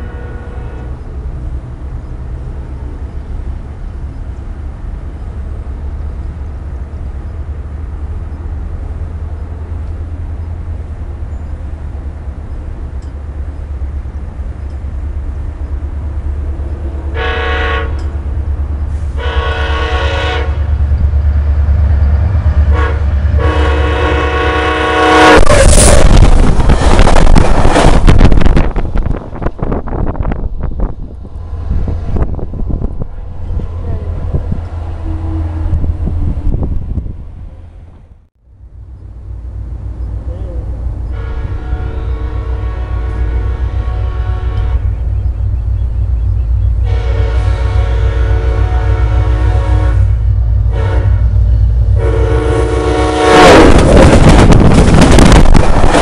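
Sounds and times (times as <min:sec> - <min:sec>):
train horn: 0:00.0 - 0:01.0, 0:17.1 - 0:18.1, 0:18.9 - 0:20.7, 0:22.7 - 0:26.3, 0:41.1 - 0:45.1, 0:46.8 - 0:54.2
diesel train rumble: 0:00.0 - 0:56.0.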